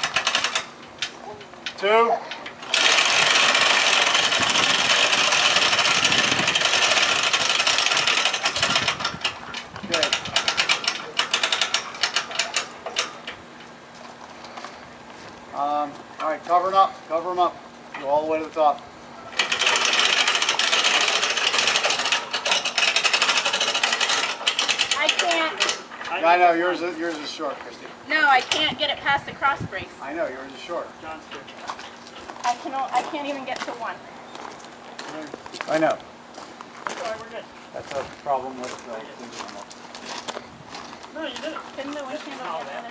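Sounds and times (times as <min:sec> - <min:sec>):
winches clicking in a rattle: 0:00.0 - 0:13.4, 0:19.3 - 0:26.4.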